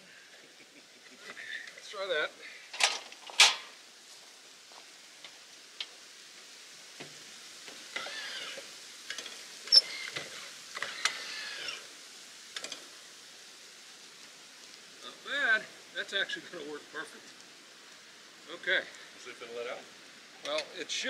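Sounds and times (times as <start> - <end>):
short squeaks: 9.7 - 10.2.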